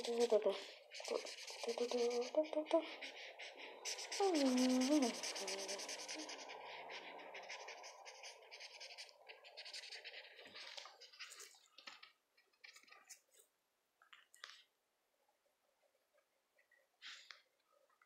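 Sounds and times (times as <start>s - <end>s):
felt-tip pen scratching on paper: 0.0s - 13.2s.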